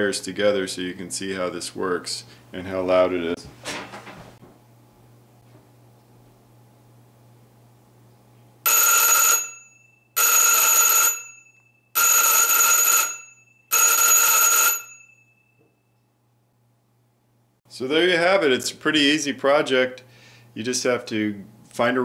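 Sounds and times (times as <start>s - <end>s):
electric bell ringing: 8.7s - 15.9s.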